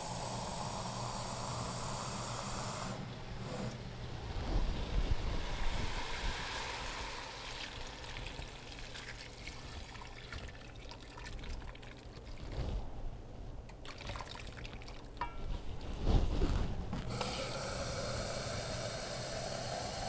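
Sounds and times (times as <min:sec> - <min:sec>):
water trickling into a pot: 0:05.4 - 0:12.6, 0:13.7 - 0:15.4.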